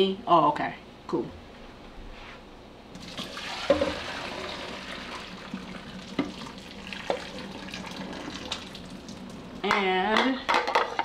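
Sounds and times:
water pouring into a steel sink: 3.0 - 9.5.

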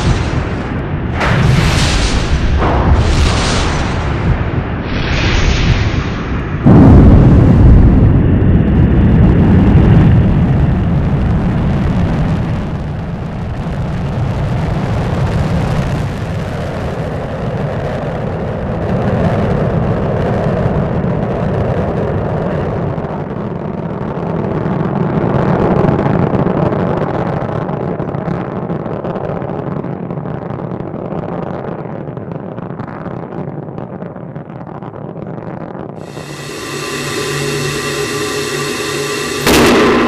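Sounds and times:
rocket launch roar: 0.0 - 18.3, 36.0 - 40.0.

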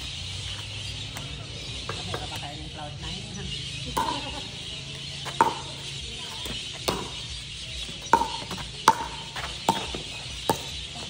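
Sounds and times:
ball bouncing on concrete: 0.6 - 2.5, 3.8 - 11.0
paddles hitting plastic ball: 8.1 - 10.7.

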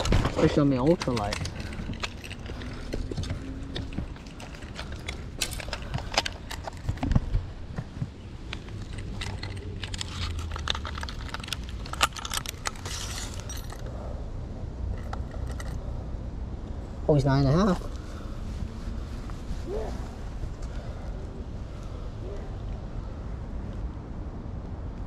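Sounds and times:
low steady rumble: 0.0 - 25.0
hands handling fish clicks: 8.4 - 13.8.

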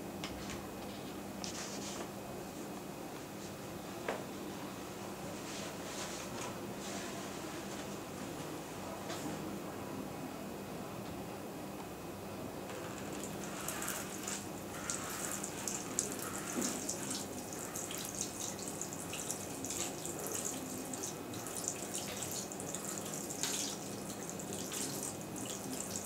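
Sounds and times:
water splashing onto plastic: 13.1 - 26.0.

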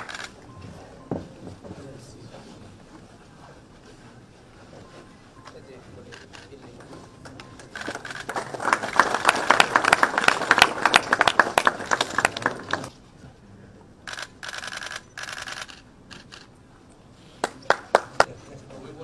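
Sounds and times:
camera shutters clicking: 0.0 - 0.4, 6.1 - 6.6, 7.6 - 8.4, 14.1 - 16.5
continuous-shooting shutter bursts: 0.0 - 0.4, 7.7 - 8.4, 14.1 - 16.5.

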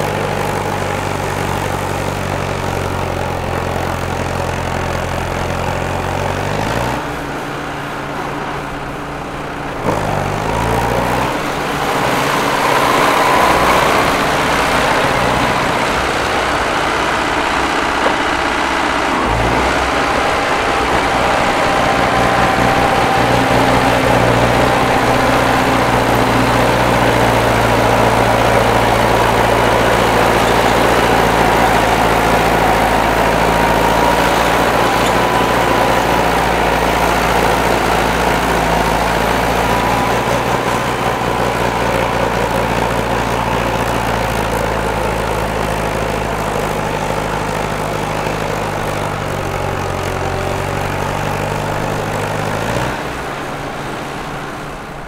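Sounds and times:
bulldozer diesel engine running: 0.0 - 55.0
high whine: 10.8 - 52.2.

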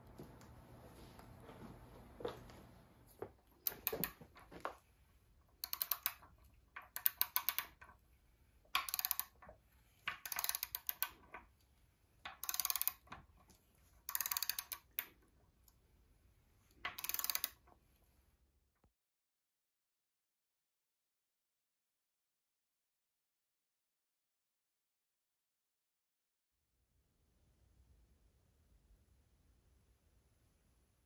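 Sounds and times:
ratchet wrench clicking: 5.6 - 6.2, 6.9 - 7.8, 8.8 - 9.3, 10.2 - 11.2, 12.4 - 13.0, 14.1 - 15.1, 17.0 - 17.6.

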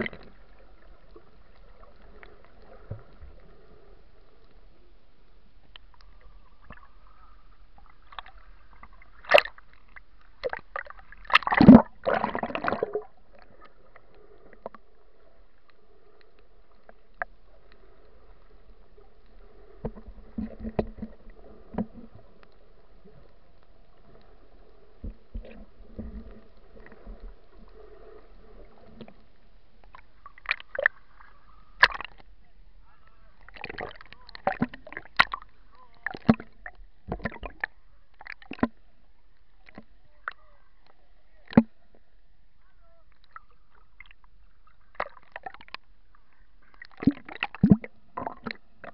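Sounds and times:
water splashes: 0.0 - 4.6, 5.7 - 15.8, 16.6 - 42.0, 42.8 - 48.9
faint underwater drone: 0.0 - 48.9
muffled water rushes and knocks: 7.7 - 14.9, 18.6 - 22.5, 24.8 - 27.7, 31.7 - 32.4, 33.4 - 38.8, 41.4 - 42.1, 46.7 - 48.9.

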